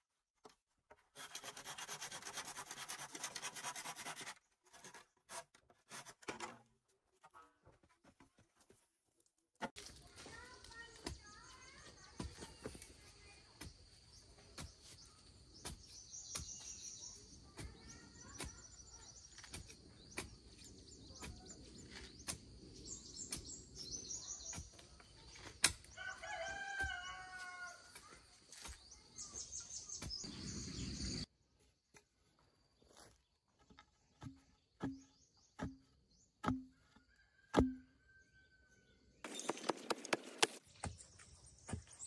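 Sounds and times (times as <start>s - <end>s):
small birds chirping: 10.0s - 42.0s
rooster crowing: 26.0s - 27.8s
sharp knocks: 36.4s - 36.8s, 37.5s - 37.9s.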